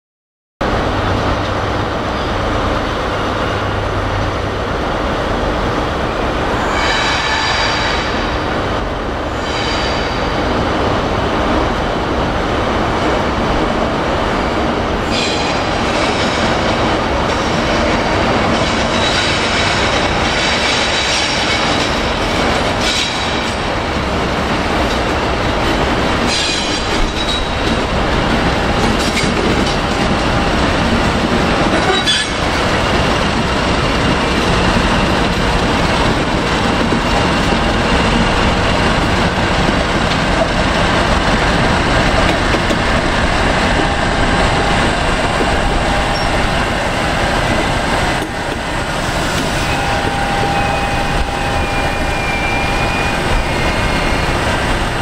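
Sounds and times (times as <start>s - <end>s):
diesel locomotive rumbling: 0.6s - 55.0s
wheel squeal on rails: 6.6s - 8.4s, 9.3s - 10.4s, 31.8s - 32.5s, 49.3s - 54.6s.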